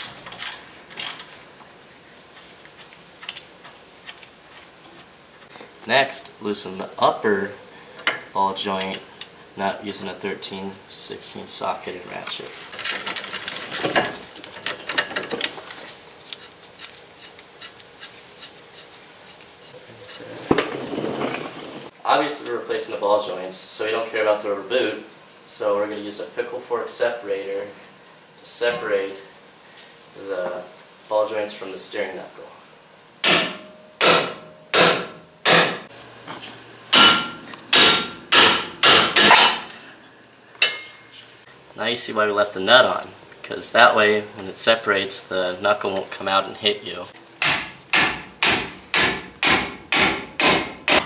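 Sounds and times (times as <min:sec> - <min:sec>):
hand ratchet clicking: 0:00.0 - 0:01.3
hammer striking steel: 0:33.2 - 0:35.9, 0:36.9 - 0:39.7, 0:47.4 - 0:51.0.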